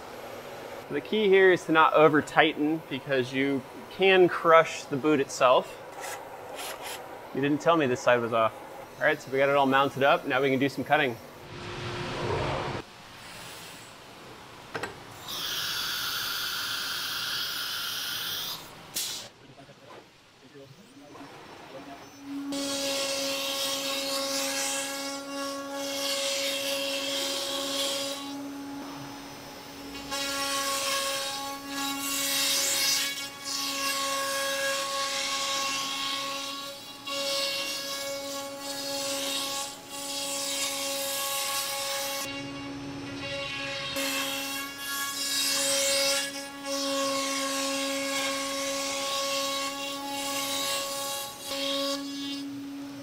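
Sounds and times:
compressed air hissing: 5.9 - 7.1, 13.1 - 14.0, 15.2 - 19.3
sharp burst of air: 11.4 - 14.0, 18.9 - 19.3.

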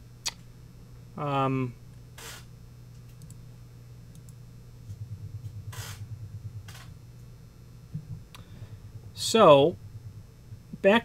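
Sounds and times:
steady low hum: 0.0 - 11.0
faint rapid fluttering: 4.1 - 11.0.

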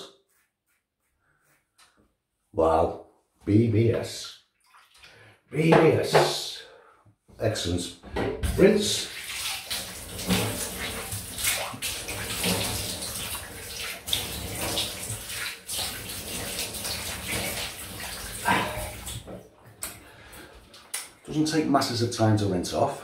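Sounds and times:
water splashing on face: 4.6 - 5.2, 8.6 - 19.3
tap water running: 8.2 - 21.6.

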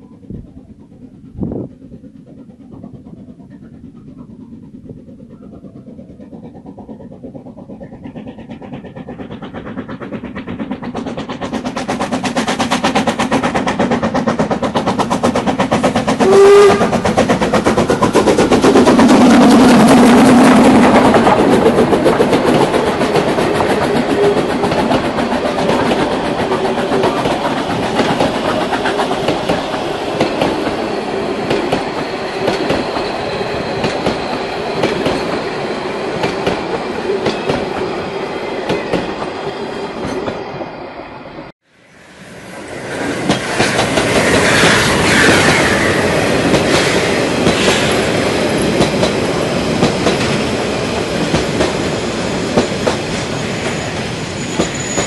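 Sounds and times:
train wheels clicking over rail joints: 0.0 - 40.7, 43.0 - 55.0
steam locomotive exhaust beats: 0.0 - 55.0
steam whistle toot: 16.2 - 17.1, 44.3 - 46.1.

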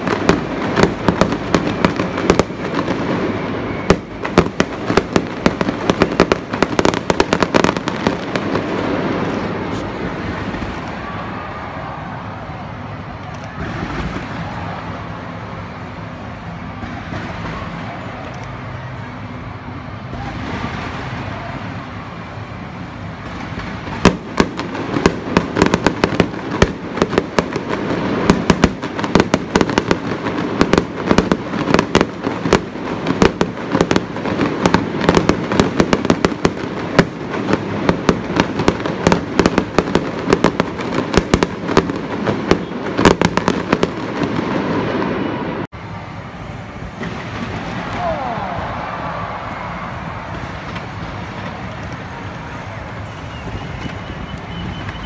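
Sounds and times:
background noise: 0.0 - 55.0
fireworks crackling: 0.0 - 55.0
fireworks pops: 13.2 - 14.6, 50.2 - 55.0.

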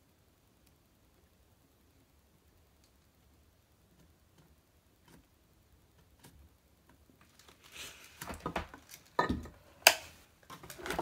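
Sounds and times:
small clicks and ticks: 2.6 - 7.6
rustling: 2.7 - 11.0.

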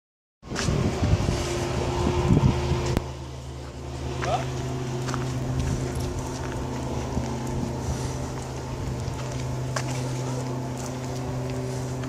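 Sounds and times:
low mechanical hum: 0.4 - 12.0
footsteps on paving: 2.8 - 12.0.

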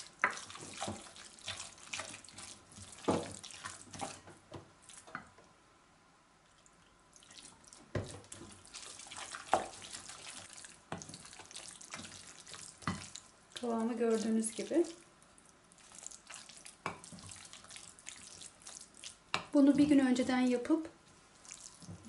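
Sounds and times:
wet paste squelching: 7.2 - 19.3.

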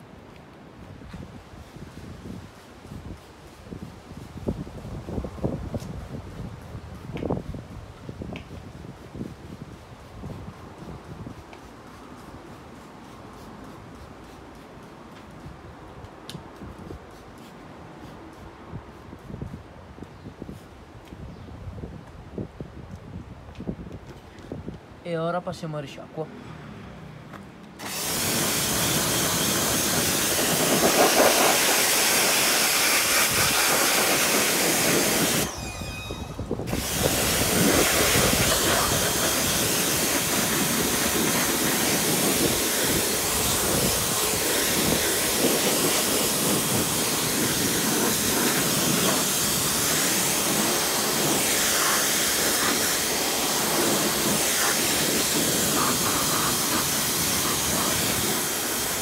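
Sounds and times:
pressure washer spraying: 27.8 - 36.0, 36.7 - 59.0.

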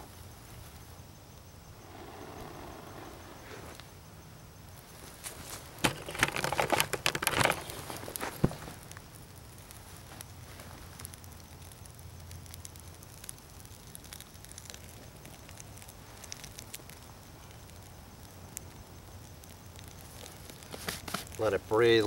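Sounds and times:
small fire crackling: 0.0 - 22.0
sharp pops of fire: 7.2 - 21.5.

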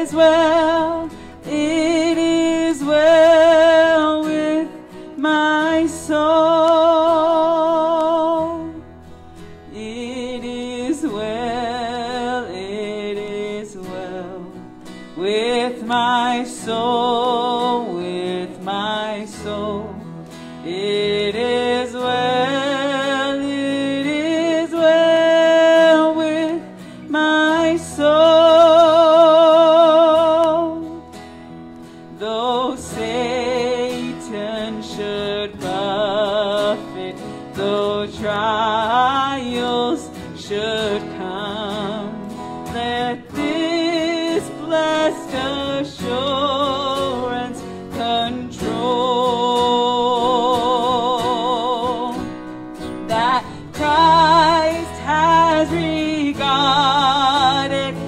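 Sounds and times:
acoustic guitar: 0.0 - 58.0
person singing a hymn: 0.0 - 58.0.

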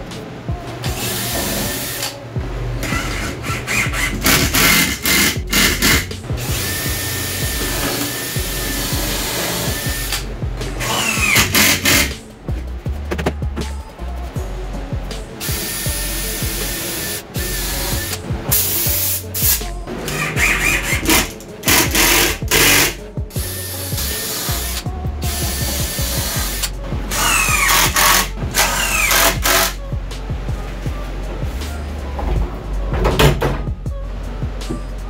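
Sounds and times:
background music: 0.0 - 35.0
cordless drill driving screws: 2.9 - 10.2, 10.8 - 12.1, 23.6 - 29.8.

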